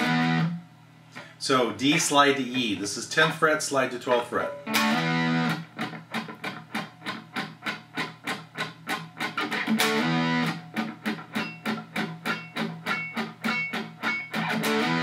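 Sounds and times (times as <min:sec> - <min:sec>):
distorted electric guitar chord: 0:00.0 - 0:00.6, 0:04.7 - 0:05.9, 0:09.2 - 0:15.0.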